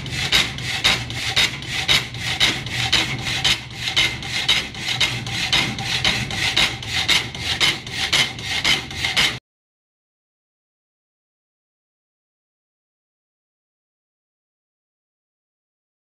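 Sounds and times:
power hacksaw cutting steel: 0:00.0 - 0:09.4.

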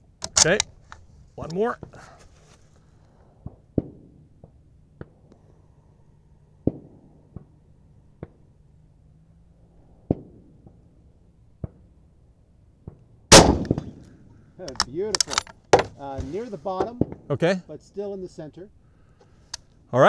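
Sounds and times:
gunshots: 0:13.3 - 0:14.0.

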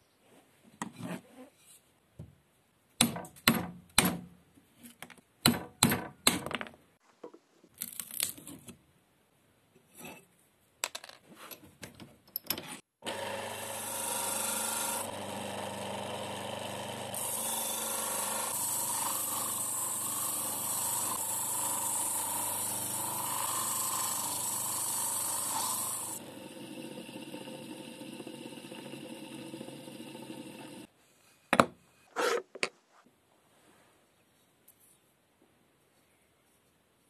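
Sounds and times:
electric grinder motor running: 0:13.0 - 0:30.9
chisel grinding on wheel: 0:17.0 - 0:30.9.

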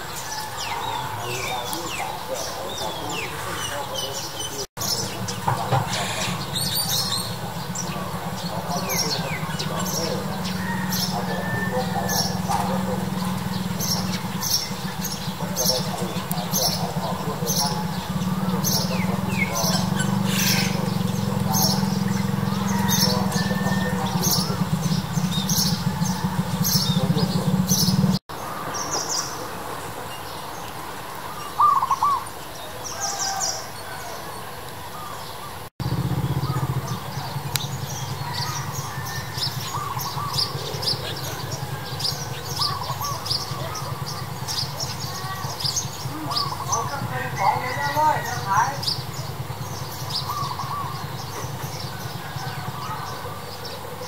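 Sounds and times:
birds chirping: 0:00.0 - 0:54.0
steady low hum: 0:04.8 - 0:28.2.

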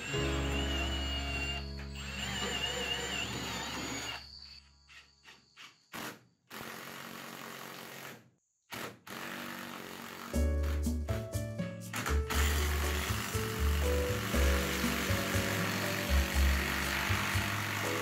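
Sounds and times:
background music: 0:00.0 - 0:02.7, 0:10.4 - 0:18.0
power driver driving screws: 0:00.0 - 0:04.3, 0:11.9 - 0:18.0.

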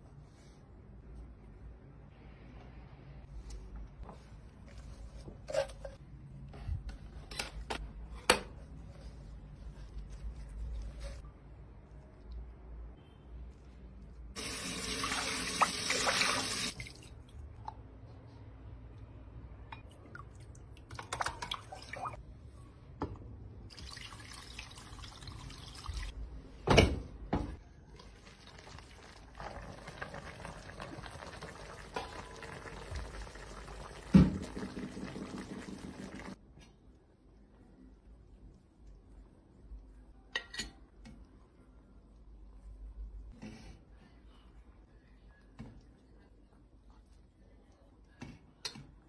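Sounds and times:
water pouring and splashing: 0:28.0 - 0:36.4.

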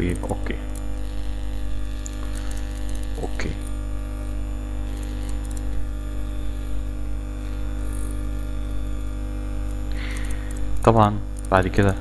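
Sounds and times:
electrical hum: 0:00.0 - 0:12.0
faint clicks: 0:09.6 - 0:11.6.

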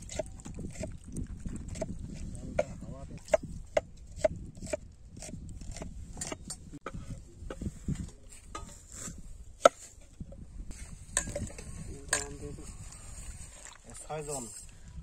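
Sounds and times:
blade chopping meat on wooden board: 0:03.3 - 0:06.4.

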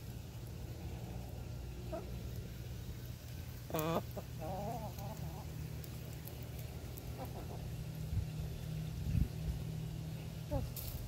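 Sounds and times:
steady low hum: 0:00.0 - 0:11.0
hens calling: 0:03.7 - 0:05.6, 0:07.0 - 0:08.0.

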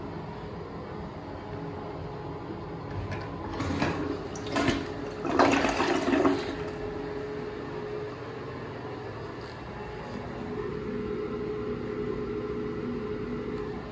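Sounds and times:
toilet flushing: 0:02.9 - 0:08.4.

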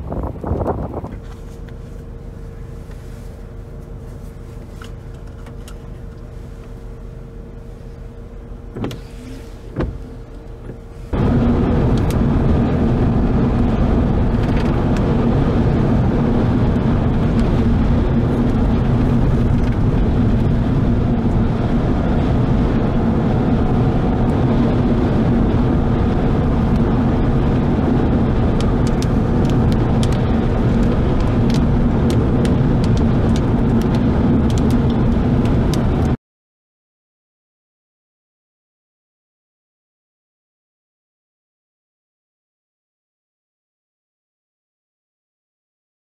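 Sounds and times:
car road noise: 0:00.0 - 0:36.2.

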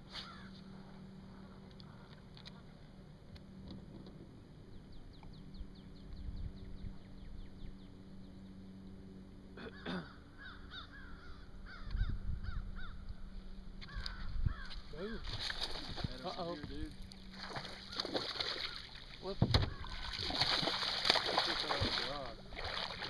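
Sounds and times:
low hum: 0:00.0 - 0:23.0
crows cawing: 0:00.2 - 0:00.6, 0:09.6 - 0:13.1, 0:13.8 - 0:15.4, 0:17.7 - 0:19.0, 0:19.6 - 0:20.5.

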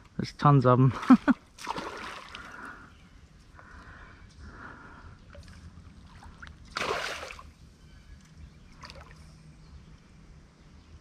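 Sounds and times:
water splashing: 0:00.9 - 0:02.6, 0:05.4 - 0:07.5
creek water trickling: 0:00.9 - 0:10.4.

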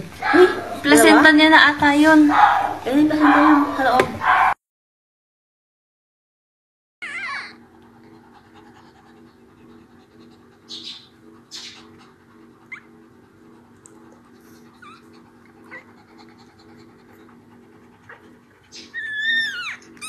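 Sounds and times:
steady low hum: 0:00.0 - 0:04.6, 0:07.1 - 0:20.0
puppy squeaking: 0:07.0 - 0:07.6, 0:10.7 - 0:11.9, 0:12.7 - 0:12.9, 0:14.8 - 0:15.1, 0:18.7 - 0:20.0.

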